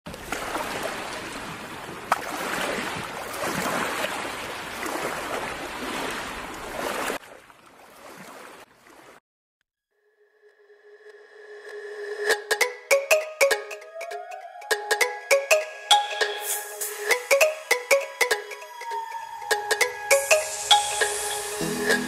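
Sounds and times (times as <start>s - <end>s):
ocean waves washing in: 0.1s - 7.2s, 15.3s - 22.0s.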